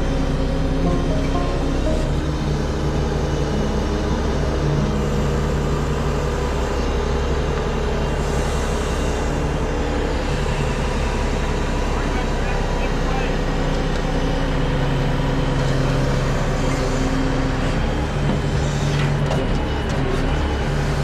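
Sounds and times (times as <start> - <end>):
truck engine running under load: 0.0 - 21.0.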